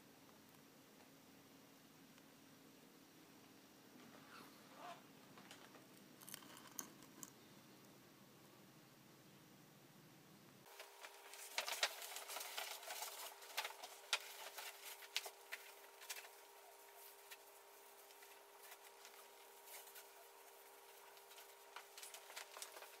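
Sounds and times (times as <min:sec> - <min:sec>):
faint steady hum: 0:00.0 - 0:23.0
paper rustling: 0:10.7 - 0:23.0.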